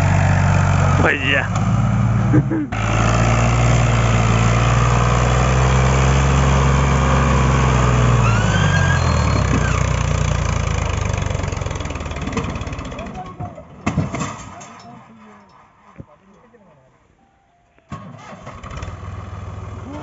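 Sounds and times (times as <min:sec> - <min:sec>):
tractor diesel engine running hard: 0:00.0 - 0:13.4, 0:18.0 - 0:20.0.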